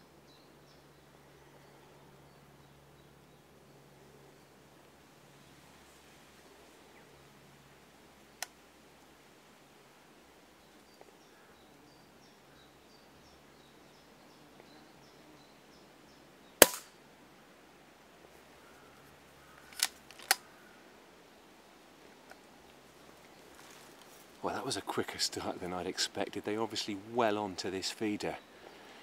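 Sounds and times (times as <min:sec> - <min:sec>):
air rifle shot: 0:16.6 - 0:17.0.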